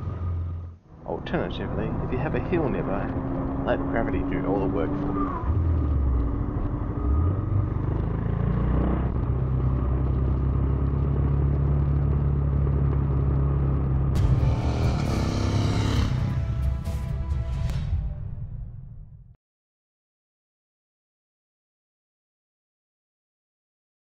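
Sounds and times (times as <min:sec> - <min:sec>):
motorcycle engine running: 0:01.2 - 0:17.0.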